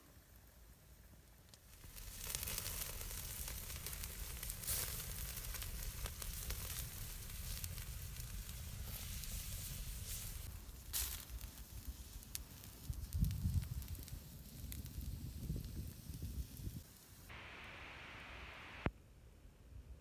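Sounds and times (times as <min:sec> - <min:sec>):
campfire crackling: 0:00.1 - 0:18.9
fire popping: 0:01.2 - 0:18.9
chicken sizzling: 0:01.6 - 0:18.9.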